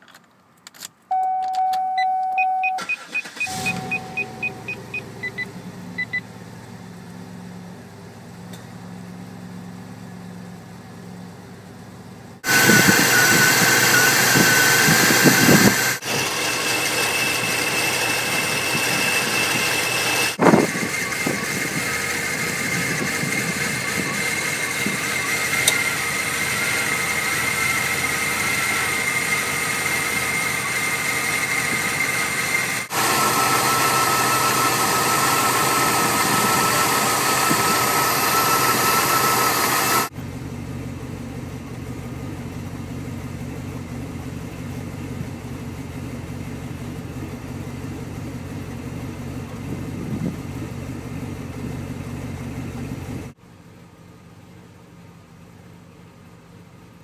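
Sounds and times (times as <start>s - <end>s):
steady high whine: 1.2s - 6.2s, 12.4s - 42.3s
car engine idling: 2.4s - 57.0s.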